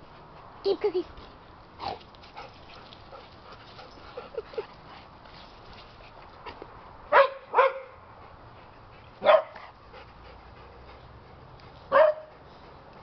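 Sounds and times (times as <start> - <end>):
dog barking: 7.1 - 8.0, 9.2 - 9.6, 11.9 - 12.3.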